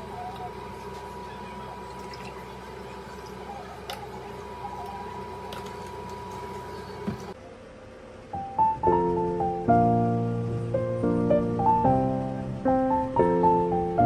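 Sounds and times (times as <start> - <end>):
mechanical hum: 0.0 - 14.0.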